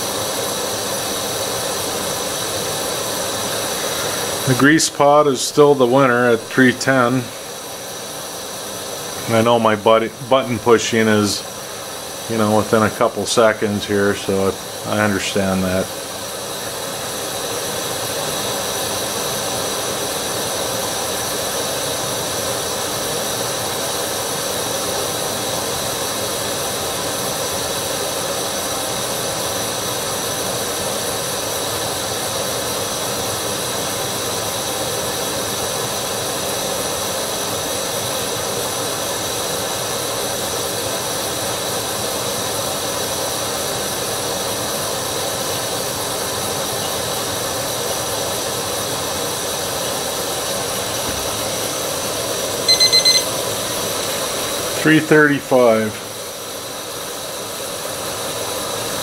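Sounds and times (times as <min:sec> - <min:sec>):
camp stove hissing: 0:00.0 - 0:59.0.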